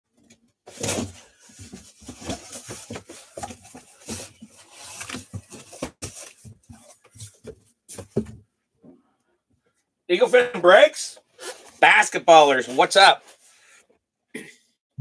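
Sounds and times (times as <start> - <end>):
handling rustling and knocking: 0.1 - 9.0.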